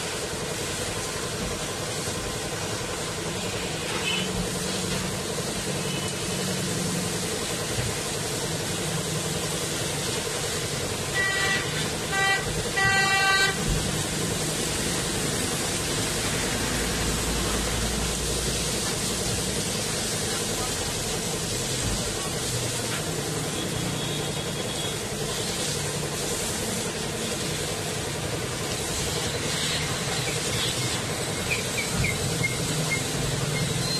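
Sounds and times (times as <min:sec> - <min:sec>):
pressure washer spraying water: 0:00.0 - 0:33.9
pump hum: 0:00.0 - 0:33.9
vehicle horn honking: 0:04.0 - 0:04.4, 0:11.1 - 0:13.6.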